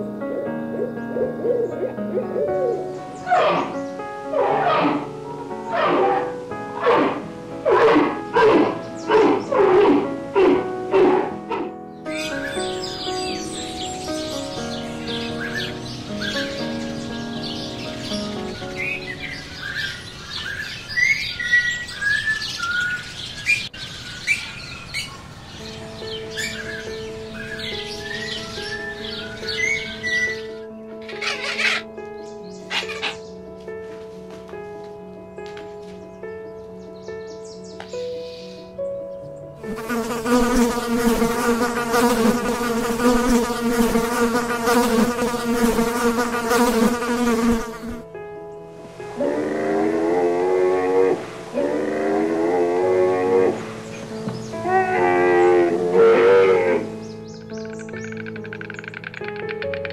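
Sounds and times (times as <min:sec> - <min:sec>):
small birds chirping: 0:00.0 - 0:33.8, 0:36.0 - 0:48.7, 0:53.5 - 0:55.7, 0:56.7 - 0:59.9
flying insect buzzing: 0:02.5 - 0:12.2, 0:39.6 - 0:48.0.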